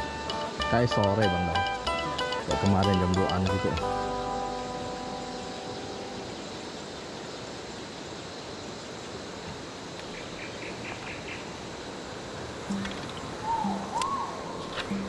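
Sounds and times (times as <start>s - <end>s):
faint insect drone: 0.0s - 15.0s
river hiss: 0.0s - 15.0s
bird chirps: 12.7s - 15.0s.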